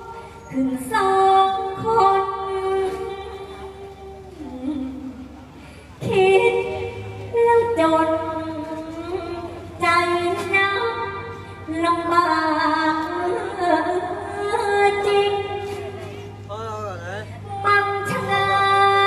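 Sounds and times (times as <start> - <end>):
woman singing long wavering notes: 17.4 - 19.0.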